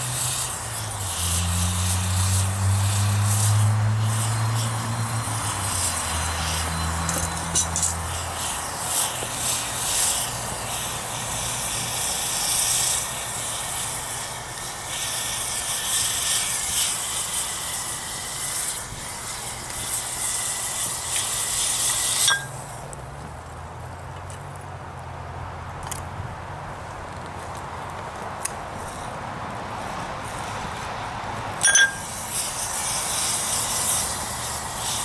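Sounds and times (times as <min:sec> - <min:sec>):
flame roaring: 0:00.0 - 0:23.6, 0:28.1 - 0:35.0
hissing sizzle: 0:00.0 - 0:24.0, 0:31.6 - 0:35.0.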